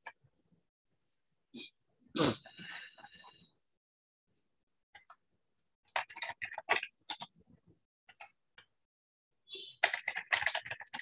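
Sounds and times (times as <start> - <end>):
keyboard typing and clicking: 4.9 - 7.4, 9.6 - 11.0.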